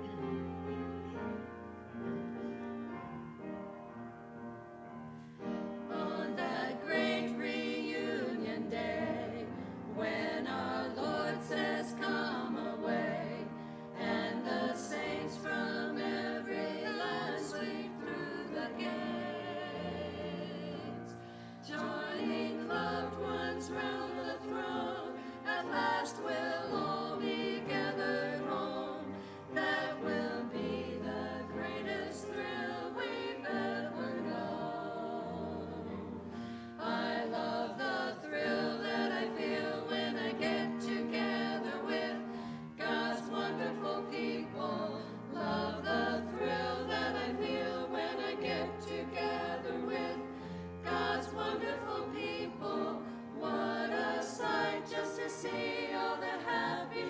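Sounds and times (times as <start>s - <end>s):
women's choir singing: 5.4s - 57.0s.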